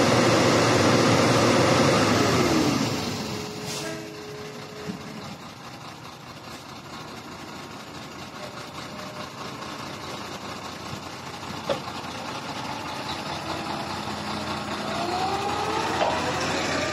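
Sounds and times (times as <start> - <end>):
diesel engines running: 0.0 - 16.9
rising whine: 14.4 - 16.9.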